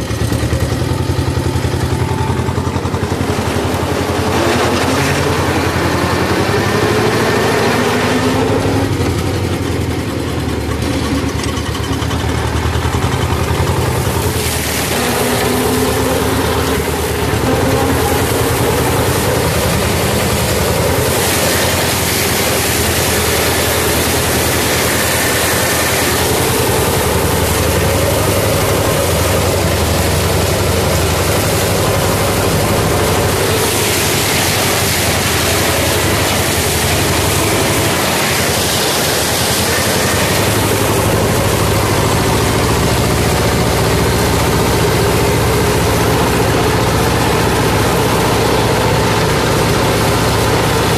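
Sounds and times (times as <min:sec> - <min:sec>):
tractor diesel engine droning: 0:00.0 - 0:50.9.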